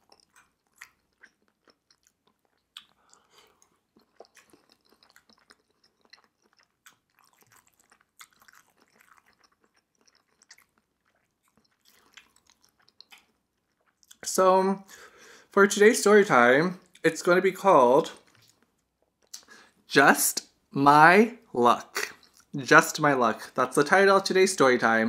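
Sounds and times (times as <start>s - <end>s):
wet mouth clicks: 0.0s - 14.2s, 18.2s - 19.6s, 22.0s - 22.6s
chewing soft food: 0.0s - 14.3s, 18.1s - 19.7s, 22.0s - 22.6s.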